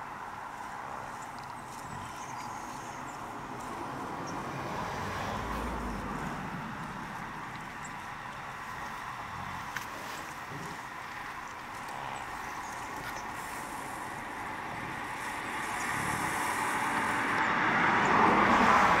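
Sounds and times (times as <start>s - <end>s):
vehicle tyre and road noise: 0.0s - 19.0s.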